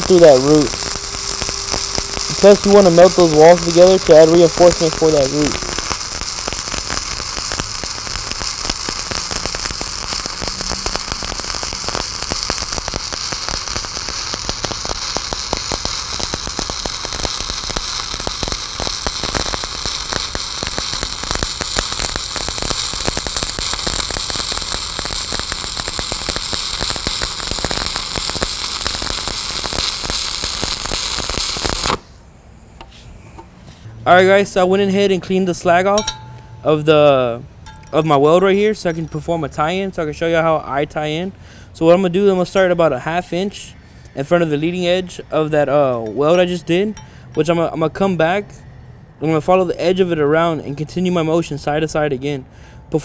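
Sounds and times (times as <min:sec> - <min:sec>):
welding arc crackling: 0:00.0 - 0:32.2.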